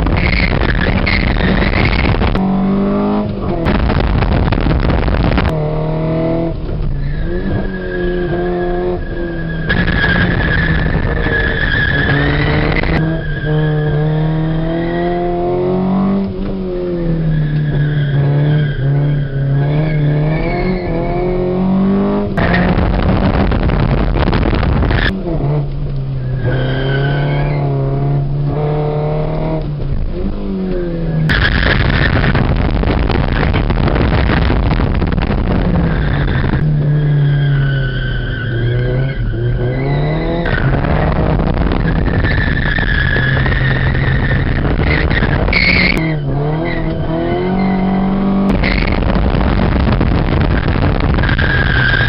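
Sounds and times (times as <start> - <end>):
wind noise rushing: 0.0 - 6.6, 8.3 - 13.2, 20.3 - 25.5, 31.3 - 37.2, 38.8 - 52.0
car engine revving: 0.0 - 52.0.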